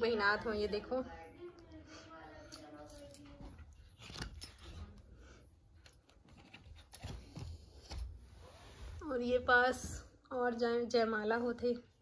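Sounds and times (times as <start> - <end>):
album pages rustling: 5.9 - 8.3.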